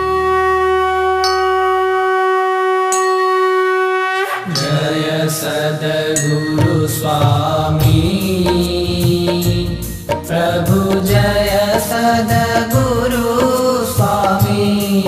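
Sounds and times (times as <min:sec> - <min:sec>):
percussion: 0:00.0 - 0:02.0, 0:02.8 - 0:15.0
conch shell blown: 0:00.0 - 0:05.3
people chanting: 0:04.4 - 0:15.0
ringing bells: 0:04.5 - 0:08.2
sharp metallic strikes: 0:04.5 - 0:15.0.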